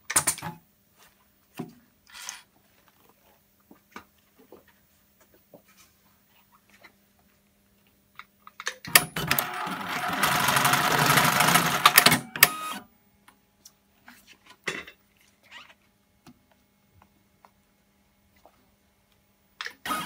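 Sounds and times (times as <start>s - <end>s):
sewing machine clicks: 8.9s - 12.6s
industrial sewing machine stitching: 9.2s - 12.8s.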